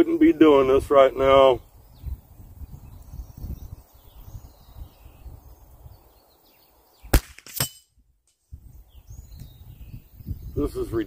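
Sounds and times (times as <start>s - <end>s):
rifle shot: 7.1s - 7.8s
sharp crack: 7.1s - 7.9s.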